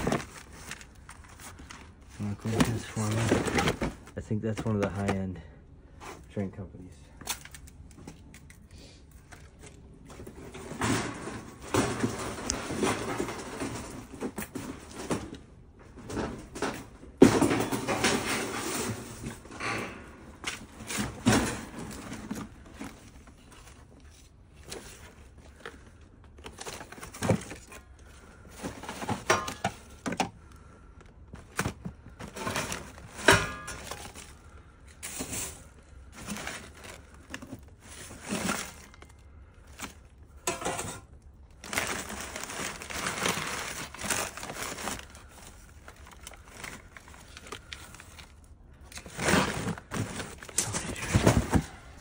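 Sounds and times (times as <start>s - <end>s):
packing paper crinkling: 0.0s - 5.2s, 33.8s - 52.0s
hard objects knocking and clattering: 16.0s - 23.1s.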